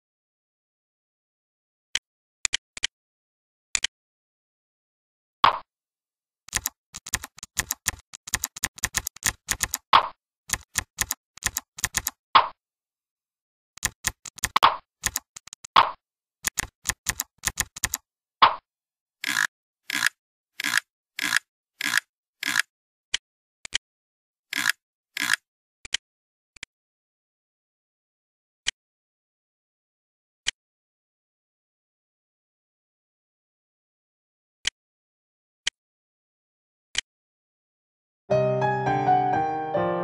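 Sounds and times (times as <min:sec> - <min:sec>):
dull mouse clicks: 0:06.5 - 0:12.5, 0:13.8 - 0:18.6, 0:19.2 - 0:22.7, 0:24.5 - 0:26.0
keyboard typing clicks: 0:06.5 - 0:12.5, 0:13.8 - 0:18.0.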